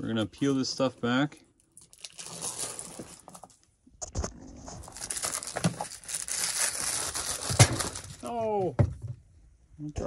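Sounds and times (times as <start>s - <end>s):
plastic liner crackling: 1.8s - 8.4s.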